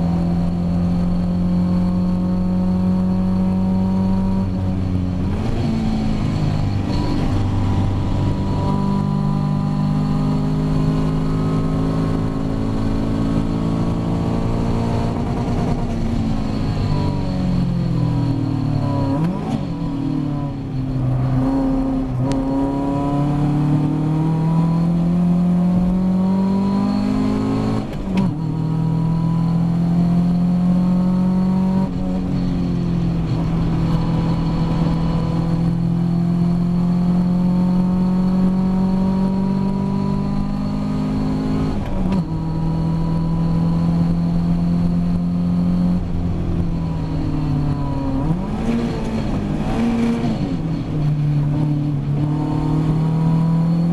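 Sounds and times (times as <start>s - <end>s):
race car engine accelerating: 0.0s - 53.9s.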